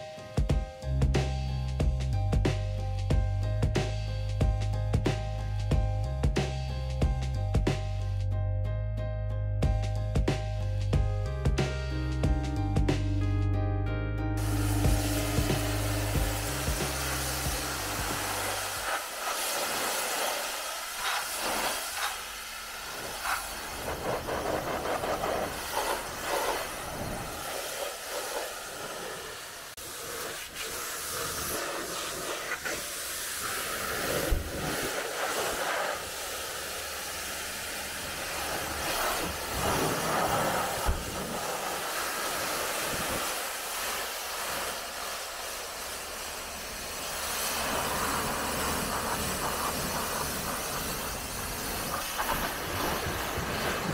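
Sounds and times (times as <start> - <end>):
pressure washer jet hissing: 14.4 - 53.9.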